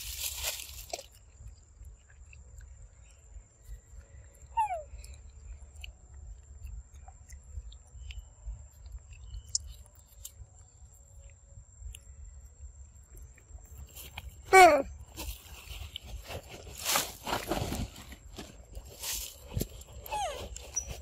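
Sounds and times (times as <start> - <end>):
falling squeak: 20.1 - 21.0.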